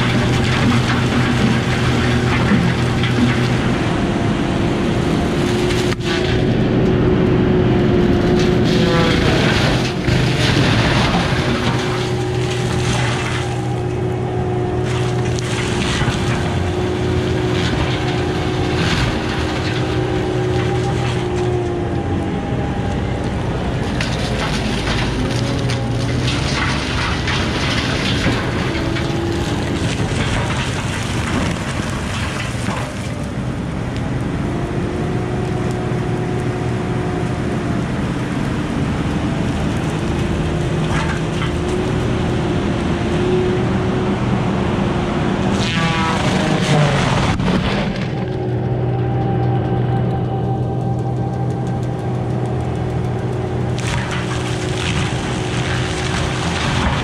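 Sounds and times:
diesel engine running hard: 0.0s - 57.0s
disc mulcher shredding brush: 0.0s - 57.0s
wood chips spattering: 51.4s - 57.0s.

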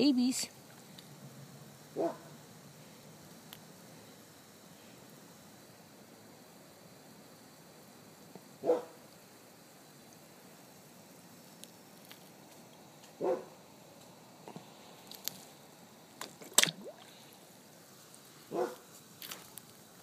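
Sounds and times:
dog barking: 2.0s - 2.3s, 8.6s - 9.0s, 13.2s - 13.5s, 18.5s - 18.8s.

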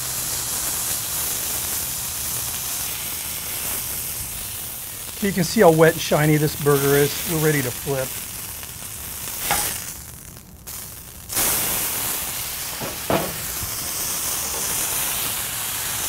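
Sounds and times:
meat patty sizzling on griddle: 0.0s - 16.0s
spatula scraping griddle: 9.4s - 9.9s, 12.7s - 15.4s.

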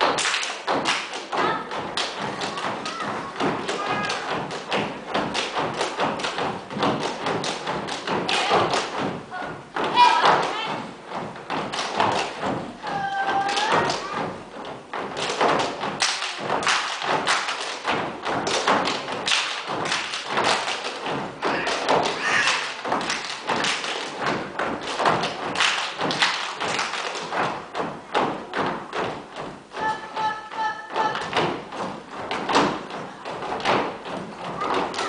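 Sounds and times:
boots stamping on wooden stage: 0.7s - 17.3s, 24.2s - 34.9s.

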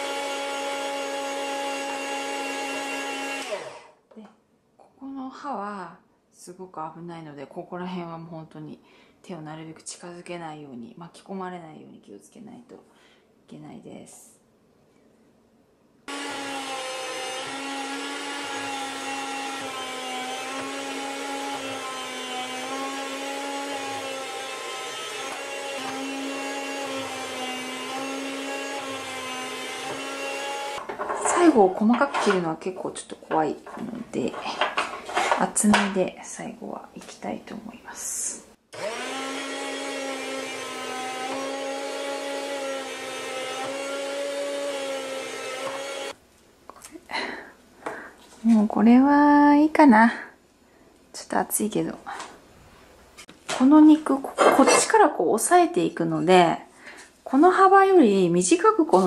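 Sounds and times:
electric food slicer motor hum: 0.0s - 3.9s, 16.1s - 30.9s, 38.7s - 46.2s.

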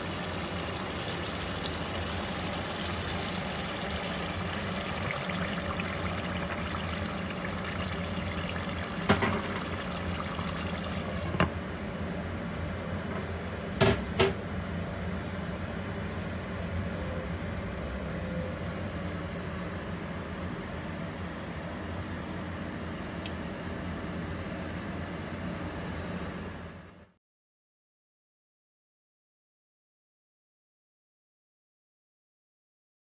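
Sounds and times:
water pouring into pot: 0.0s - 11.4s.

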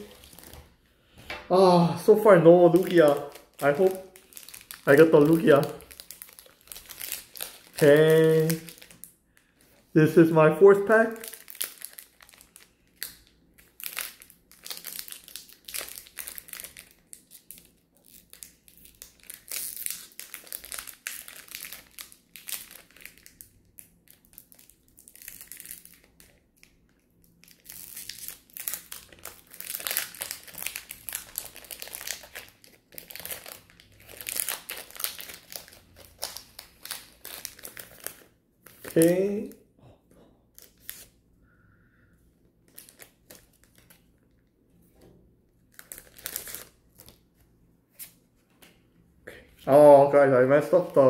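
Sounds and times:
foil wrapper crinkling: 0.0s - 0.7s, 2.4s - 9.8s, 10.8s - 39.6s, 42.7s - 44.4s, 45.7s - 47.3s.

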